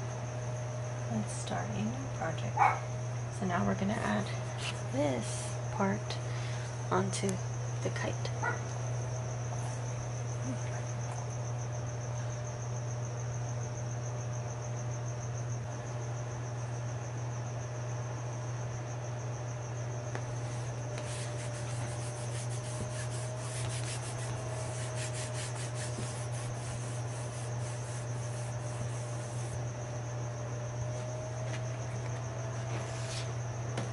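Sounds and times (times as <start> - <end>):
steady low hum: 0.0 - 33.9
hands rubbing paper on mat: 20.4 - 29.6, 32.7 - 33.3.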